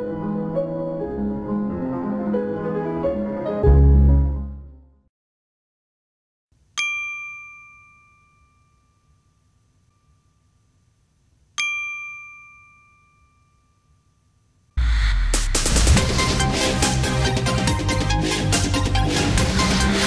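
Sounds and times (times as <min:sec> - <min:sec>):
bright bell dings: 0:06.8 - 0:11.0, 0:11.6 - 0:14.6.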